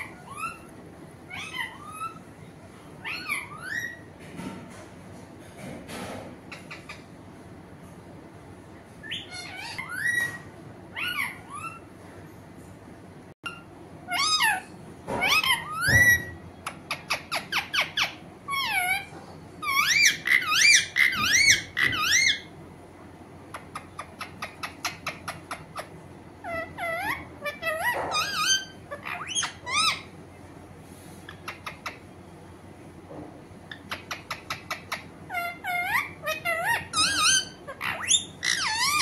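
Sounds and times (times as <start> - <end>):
parakeet calling: 0.0 - 2.4, 3.0 - 4.1, 6.5 - 7.2, 9.0 - 11.9, 13.4 - 22.6, 23.5 - 30.2, 31.2 - 32.2, 33.6 - 39.0.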